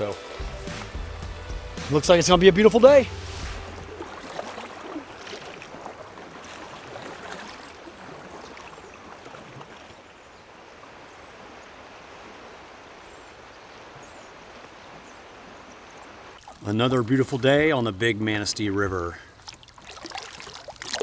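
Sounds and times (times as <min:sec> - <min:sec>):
river water flowing: 0:00.0 - 0:21.0
faint light splashes: 0:03.2 - 0:10.2, 0:16.3 - 0:16.7, 0:19.2 - 0:21.0.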